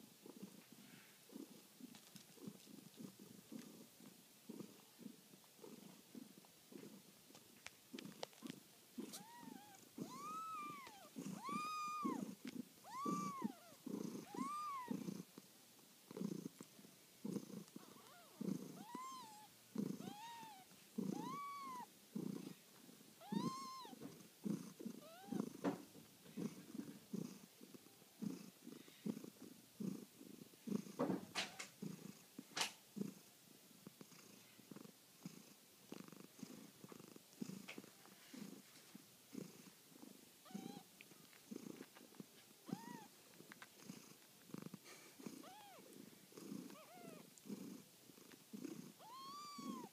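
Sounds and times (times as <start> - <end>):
cats purring: 0.0 - 49.9
kitten mews: 9.1 - 12.2, 12.9 - 13.7, 18.1 - 21.9, 23.2 - 24.0, 49.0 - 49.9.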